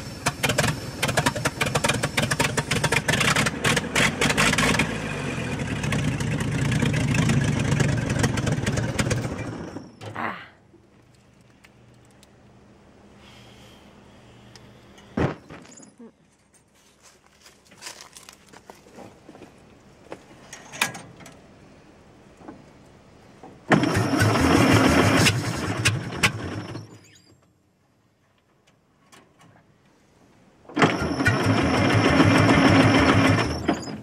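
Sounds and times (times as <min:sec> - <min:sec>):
electric starter cranking engine: 0:00.0 - 0:06.6, 0:23.7 - 0:27.0, 0:30.7 - 0:34.0.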